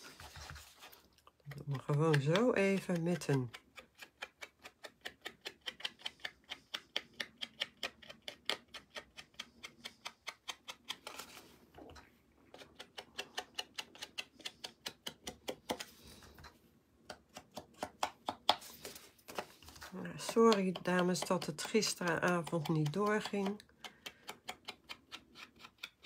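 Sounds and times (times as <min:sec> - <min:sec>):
ink pad tapping cardstock: 0:20.2 - 0:24.2.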